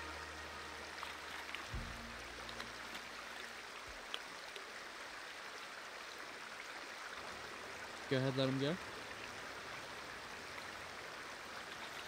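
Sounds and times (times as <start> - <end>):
low held note: 0.0 - 3.2
background music: 0.0 - 3.7
shallow stream flowing: 0.0 - 12.0.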